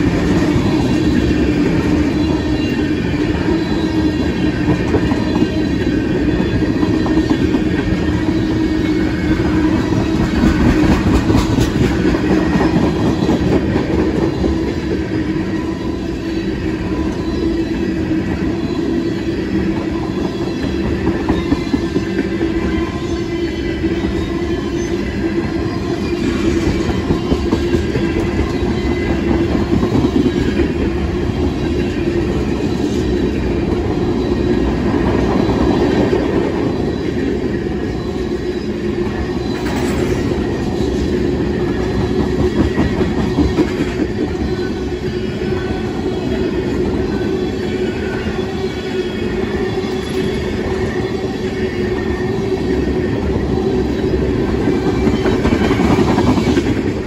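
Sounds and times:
train wheels rumbling on rails: 0.0s - 57.0s
train wheel clicks: 9.9s - 14.5s, 39.6s - 40.4s.

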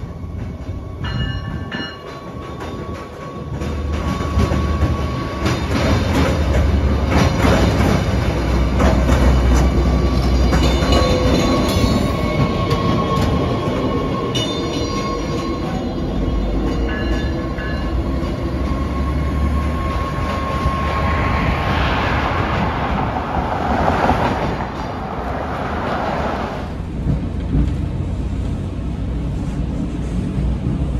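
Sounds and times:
diesel railcar rumble: 0.0s - 30.9s
wheels clicking over rail joints: 1.4s - 15.3s.

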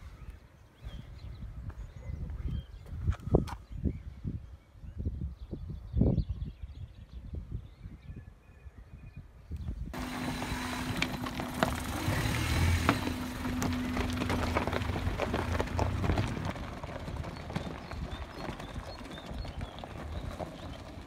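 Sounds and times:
car engine running: 10.0s - 21.0s
pebbles crunching under tyres: 10.0s - 21.0s.

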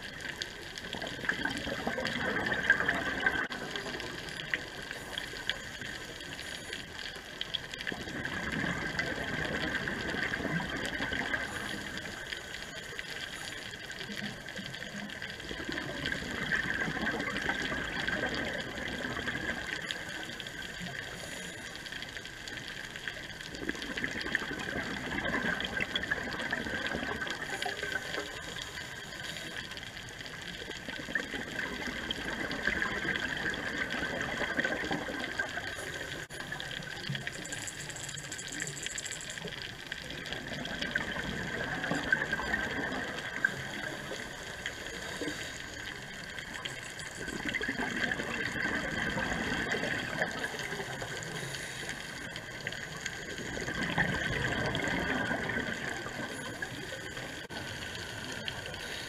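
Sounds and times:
bubbles rushing and gurgling: 0.0s - 59.0s
underwater hiss: 43.4s - 46.2s, 50.0s - 52.4s, 57.9s - 59.0s.

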